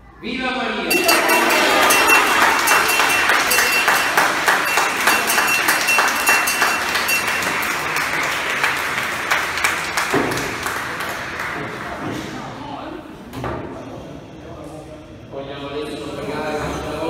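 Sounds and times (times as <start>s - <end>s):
high ringing tone: 0.9s - 8.2s
crowd applauding: 0.9s - 12.3s.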